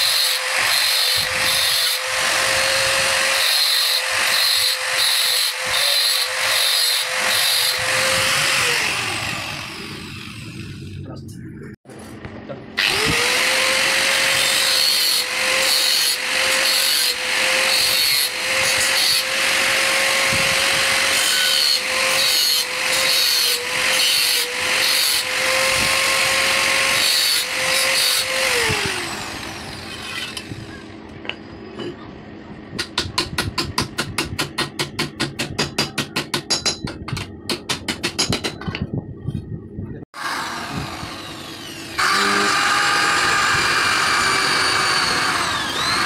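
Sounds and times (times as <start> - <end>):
angle grinder cutting steel: 0.0 - 11.0, 12.8 - 30.9, 40.2 - 46.0.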